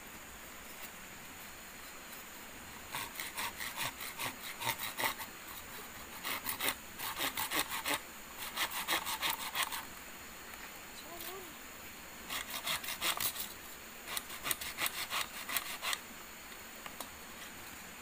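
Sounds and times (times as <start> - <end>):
hand saw cutting bamboo: 2.9 - 9.9, 12.3 - 13.5, 14.1 - 16.0.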